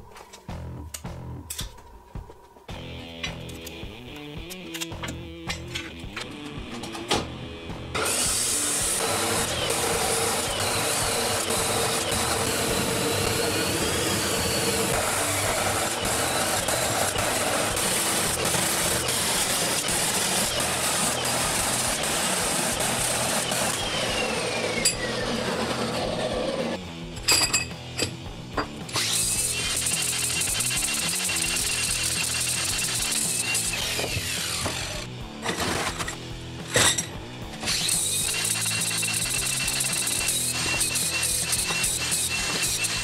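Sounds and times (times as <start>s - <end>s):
chop saw grinding steel: 7.9s - 43.0s
steel pieces clinking: 35.4s - 37.2s.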